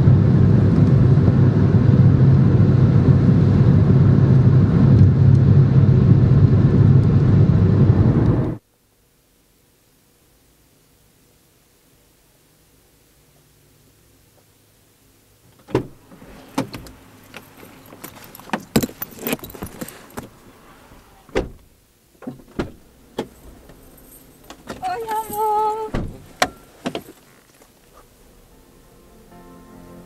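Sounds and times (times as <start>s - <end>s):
car door shutting with thump: 15.6s - 17.0s, 21.3s - 23.8s, 25.9s - 27.2s
clicks knocks and rustling: 22.2s - 27.8s
brief high-pitched voice: 24.8s - 26.0s.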